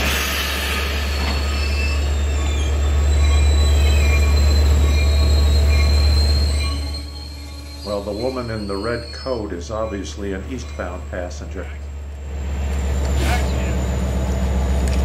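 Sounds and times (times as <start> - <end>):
wheel and brake squeal: 0.0 - 11.5
train rumbling: 0.0 - 15.0.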